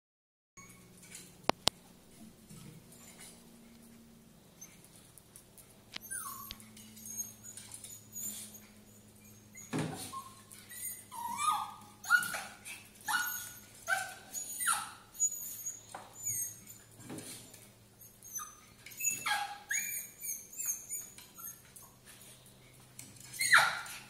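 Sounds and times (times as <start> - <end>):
dog whining and yelping: 0.6 - 1.0, 6.0 - 16.9, 18.0 - 22.4, 23.2 - 24.0.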